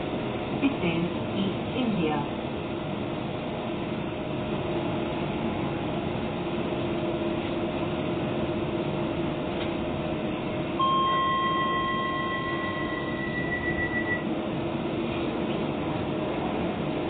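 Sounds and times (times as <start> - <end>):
train humming at platform: 0.0 - 17.0
electronic multi-tone chime: 10.8 - 14.2.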